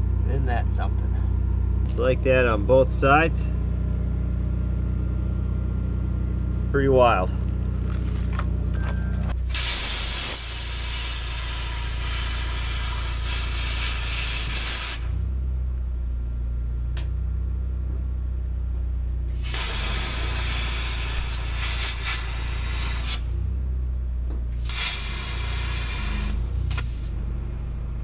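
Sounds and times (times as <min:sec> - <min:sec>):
low steady hum: 0:00.0 - 0:24.7
plasma cutter hissing: 0:09.5 - 0:15.2, 0:19.4 - 0:23.4, 0:24.6 - 0:27.2.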